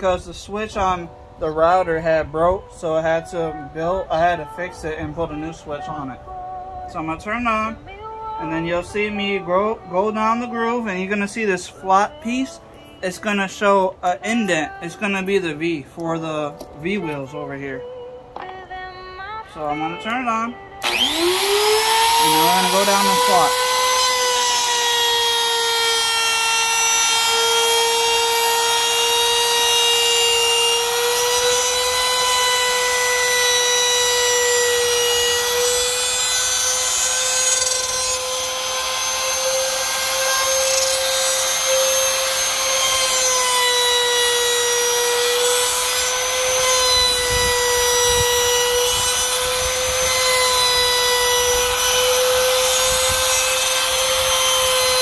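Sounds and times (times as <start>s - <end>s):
trim router cutting aluminium: 20.8s - 55.0s.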